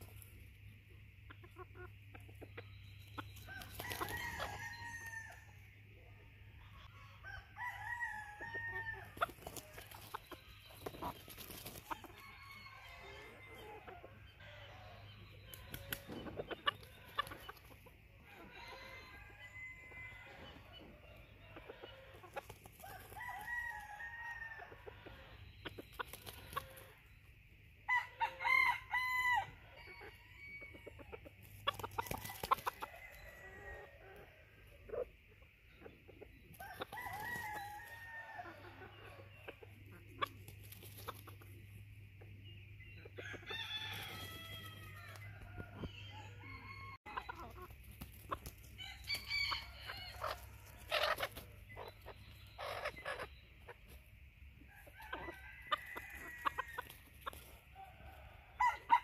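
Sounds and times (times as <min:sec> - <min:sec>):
rooster crowing: 0:03.5 - 0:05.6, 0:06.9 - 0:09.2, 0:12.0 - 0:13.6, 0:18.4 - 0:20.6, 0:22.8 - 0:25.2, 0:27.9 - 0:30.8, 0:36.6 - 0:38.8, 0:43.2 - 0:47.6, 0:48.8 - 0:51.2, 0:54.7 - 0:56.9, 0:57.8 - 0:59.0
rooster clucking: 0:49.1 - 0:54.0.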